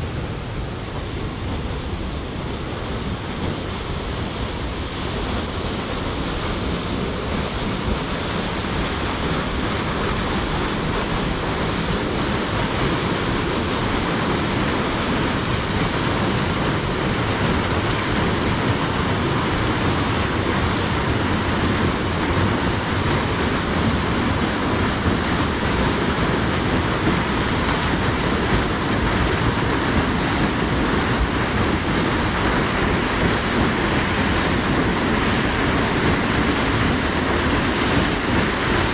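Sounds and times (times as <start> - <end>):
waterfall roaring: 0.0 - 38.9.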